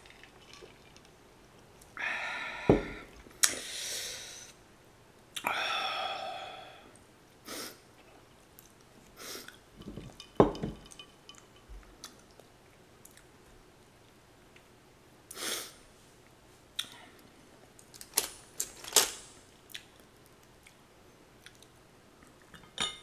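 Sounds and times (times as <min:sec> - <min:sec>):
glass knocking on table: 0:09.8 - 0:11.0.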